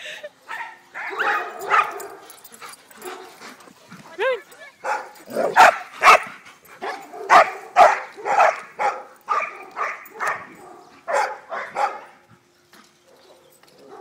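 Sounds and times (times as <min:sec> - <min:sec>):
dog barking: 0:00.5 - 0:02.2, 0:04.8 - 0:12.2.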